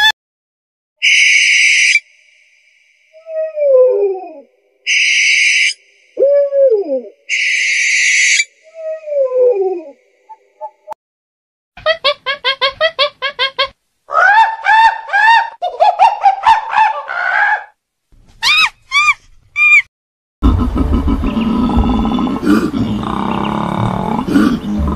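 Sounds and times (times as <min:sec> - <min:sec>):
owl falling call: 0:04.9 - 0:05.8, 0:07.3 - 0:08.5
monkeys calling: 0:14.1 - 0:17.7, 0:20.6 - 0:24.9.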